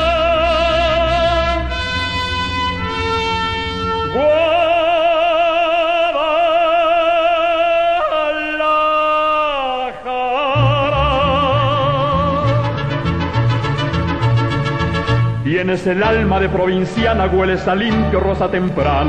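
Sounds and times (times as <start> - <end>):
man singing with vibrato: 0.0 - 2.2, 4.0 - 13.4, 15.4 - 19.0
bass guitar line: 10.6 - 19.0.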